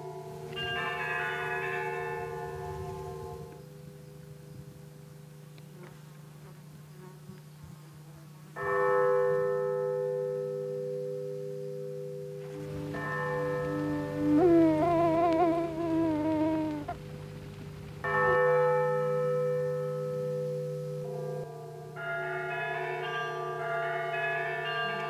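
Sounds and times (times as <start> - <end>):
large bells ringing: 0.0 - 4.5, 8.6 - 17.0, 18.0 - 25.0
steady low buzz: 12.4 - 18.2.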